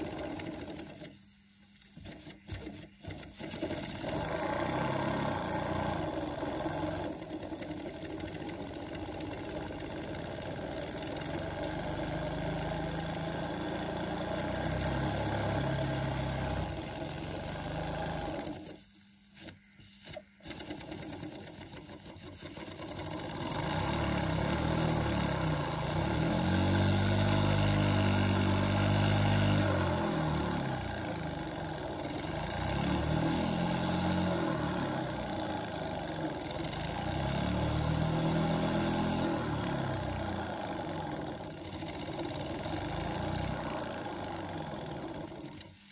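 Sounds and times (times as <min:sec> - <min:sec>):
model steam engine running: 0:00.0 - 0:01.1, 0:05.5 - 0:18.7, 0:20.5 - 0:26.2, 0:35.0 - 0:39.0, 0:40.1 - 0:45.7.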